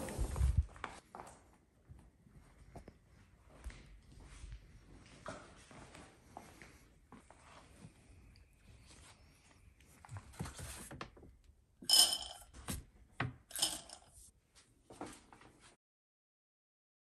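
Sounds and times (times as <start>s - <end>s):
dry kibble pouring into bowl: 11.9s - 12.4s, 13.5s - 14.0s.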